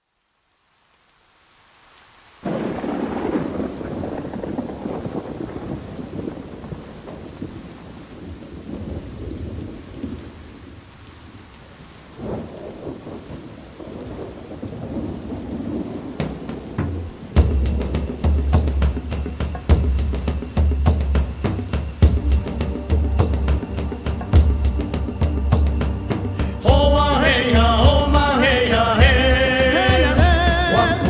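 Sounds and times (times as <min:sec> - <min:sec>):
steady hiss: 0:15.8 - 0:31.0.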